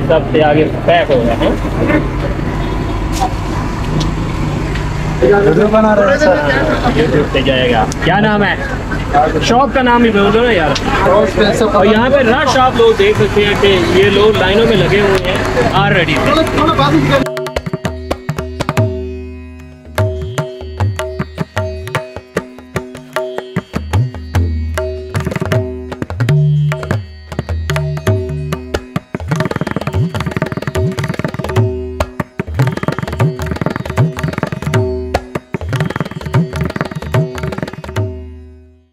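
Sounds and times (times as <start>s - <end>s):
fast hand drum pattern: 13.1s - 19.2s, 19.8s - 38.2s.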